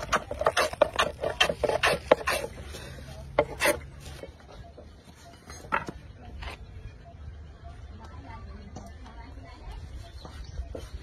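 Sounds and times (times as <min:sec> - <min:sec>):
blade scraping wood shavings: 0:00.0 - 0:04.2.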